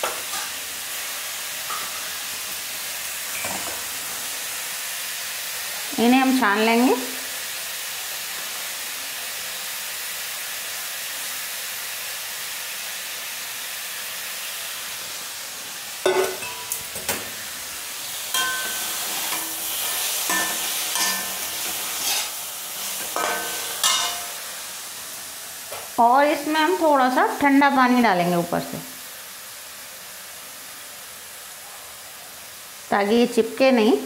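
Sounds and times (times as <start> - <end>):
vegetables sizzling in a pan: 0.0 - 34.0
metal spatula scraping a pan: 18.3 - 24.4
sharp metal clanks: 18.4 - 19.6.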